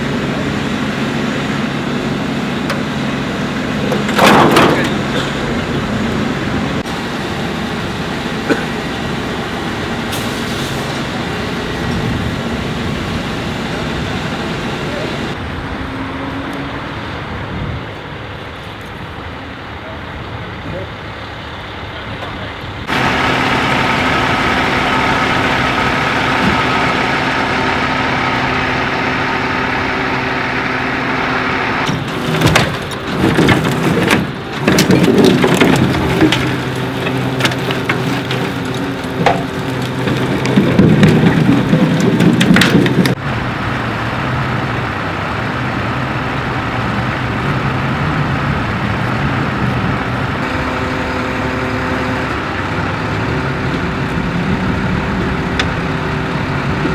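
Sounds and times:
diesel truck engine running: 0.0s - 56.9s
cracking and scraping metal: 3.6s - 5.9s, 31.7s - 43.2s.

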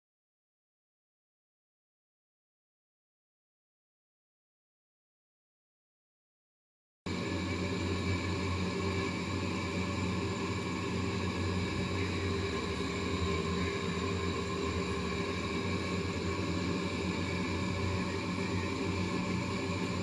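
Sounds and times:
steady hum with held tones: 7.1s - 20.0s.

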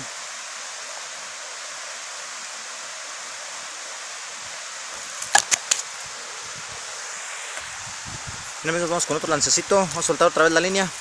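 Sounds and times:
river water rushing: 0.0s - 11.0s
sharp clicks: 5.2s - 5.9s.

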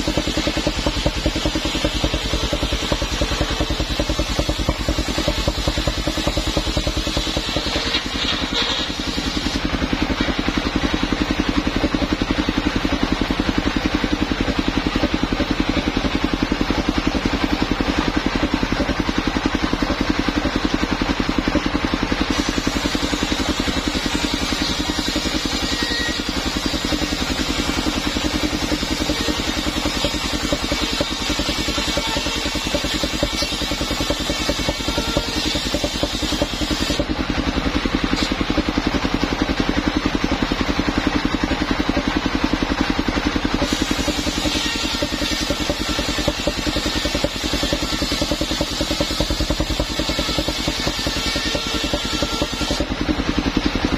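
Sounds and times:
circular saw ripping wood: 0.0s - 38.7s, 43.5s - 53.6s
sawmill engine chugging: 0.0s - 53.9s.

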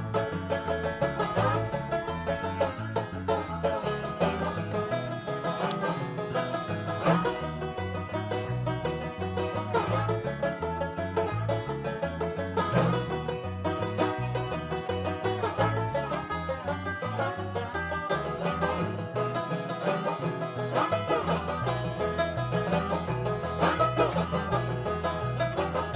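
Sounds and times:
upbeat bluegrass music: 0.0s - 25.9s.

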